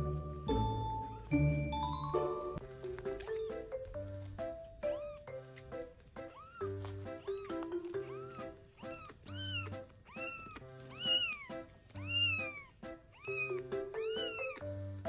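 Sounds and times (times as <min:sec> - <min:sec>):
background music: 0:00.0 - 0:15.0
kitten meowing: 0:04.8 - 0:05.3, 0:06.2 - 0:14.6.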